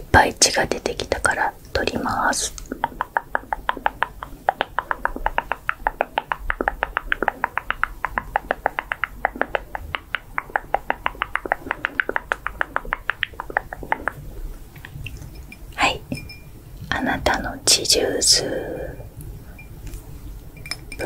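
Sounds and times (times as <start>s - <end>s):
lip smacks and tongue clicks: 2.5s - 15.4s.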